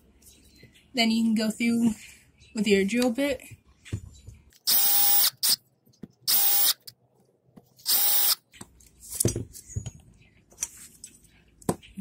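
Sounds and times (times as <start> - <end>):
cordless drill boring into wood: 4.7 - 5.6, 6.3 - 6.9, 7.8 - 8.4.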